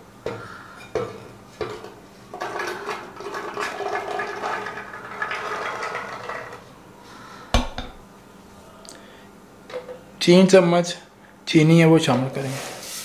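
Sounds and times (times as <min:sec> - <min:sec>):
seeds pattering into blender jug: 0:02.3 - 0:06.6.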